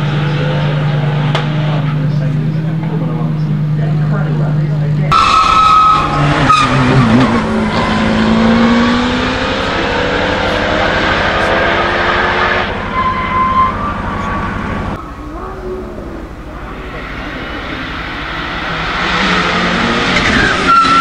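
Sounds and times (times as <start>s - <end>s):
car engine revving: 0.0s - 21.0s
tyres screeching: 5.1s - 21.0s.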